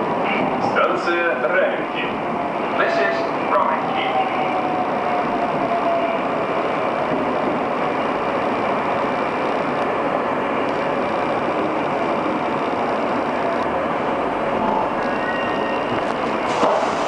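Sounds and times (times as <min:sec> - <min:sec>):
metro train wheels rumbling on rail: 0:00.0 - 0:17.0.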